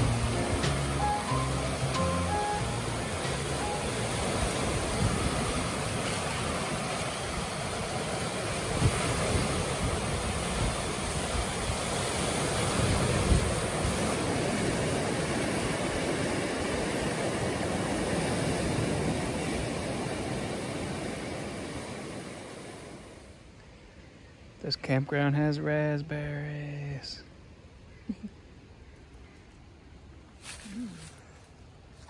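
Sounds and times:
waves breaking: 0:00.0 - 0:27.9
wind buffeting microphone: 0:04.3 - 0:21.8.

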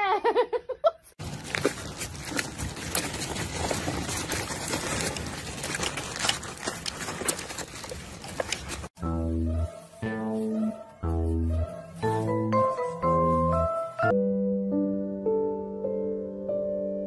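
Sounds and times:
plastic wheels rolling over asphalt: 0:01.2 - 0:09.0.

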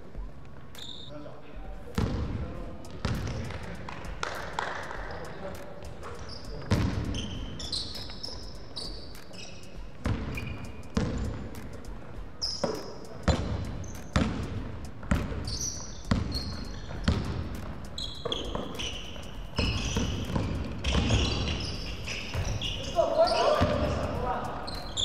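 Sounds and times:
sneaker squeaks: 0:00.6 - 0:01.3, 0:02.8 - 0:25.0
basketball bouncing on wooden floor: 0:02.9 - 0:04.7, 0:06.6 - 0:07.3, 0:10.0 - 0:11.5, 0:12.6 - 0:18.9, 0:19.5 - 0:22.7.

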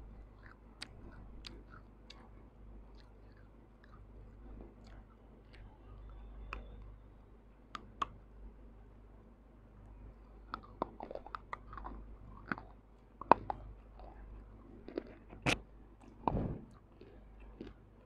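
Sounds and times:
crunchy biting and chewing: 0:00.2 - 0:06.7, 0:10.5 - 0:17.8.

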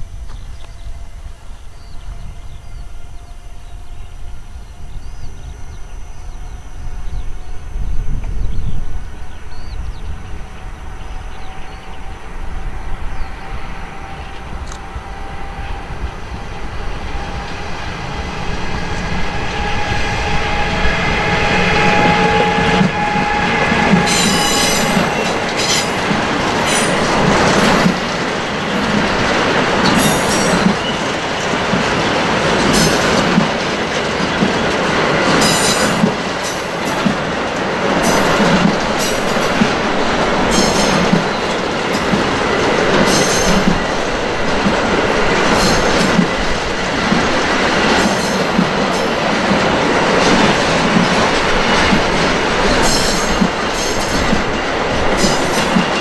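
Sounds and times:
electric locomotive whine: 0:00.0 - 0:56.0
high-pitched wheel squeals: 0:11.4 - 0:27.8
wheels clattering over rail joints: 0:23.8 - 0:56.0.

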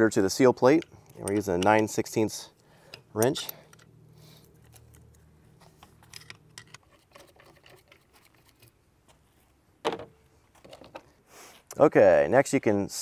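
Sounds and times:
wrench and bolts clinking: 0:00.6 - 0:02.2, 0:02.8 - 0:04.0, 0:05.7 - 0:08.8.

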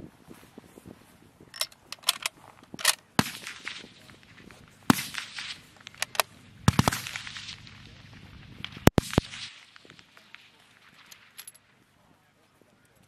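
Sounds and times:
rifle bolt clicking: 0:01.6 - 0:03.0, 0:05.9 - 0:06.3
rifle shots: 0:01.6 - 0:11.6.

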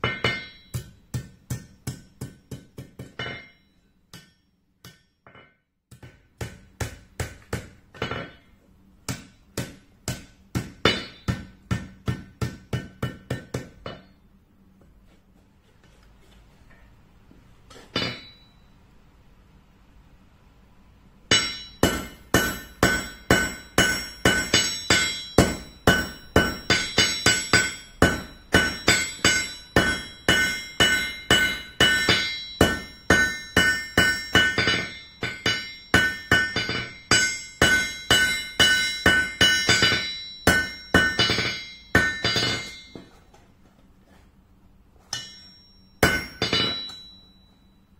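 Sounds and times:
hammer striking metal on anvil: 0:00.0 - 0:14.3, 0:17.8 - 0:18.7, 0:21.3 - 0:43.4, 0:45.1 - 0:47.8.

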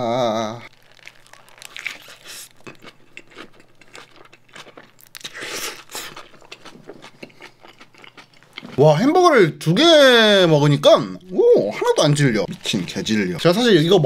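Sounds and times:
man groaning: 0:00.0 - 0:00.7
paper wrapper crinkling: 0:00.6 - 0:02.8, 0:11.5 - 0:14.0
biting and chewing food: 0:00.7 - 0:09.0, 0:11.9 - 0:14.0.

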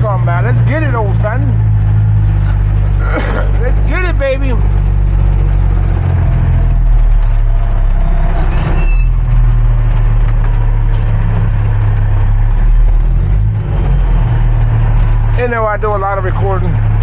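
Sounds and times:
diesel truck engine running: 0:00.0 - 0:17.0
short high squeal: 0:08.4 - 0:09.2.

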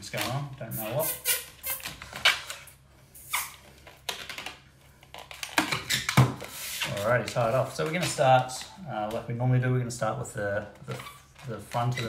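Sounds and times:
balloon squeaking and rubbing: 0:00.1 - 0:04.3, 0:05.0 - 0:07.6, 0:10.9 - 0:12.0.

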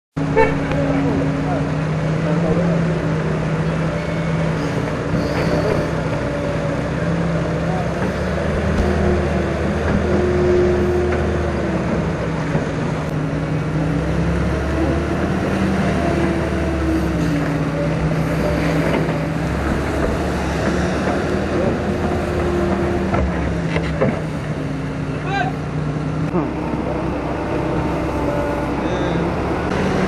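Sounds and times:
excavator diesel engine under load: 0:00.1 - 0:30.0.

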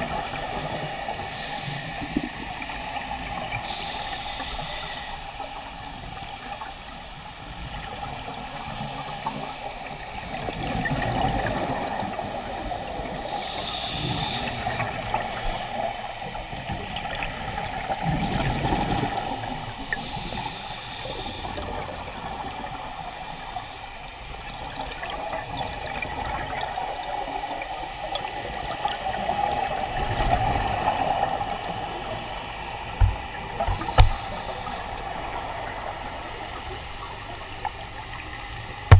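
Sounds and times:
regulator hiss on inhale: 0:00.0 - 0:06.6, 0:08.2 - 0:10.4, 0:12.0 - 0:17.2, 0:18.3 - 0:25.8, 0:26.6 - 0:38.2
bubbles gurgling on exhale: 0:10.3 - 0:12.3.

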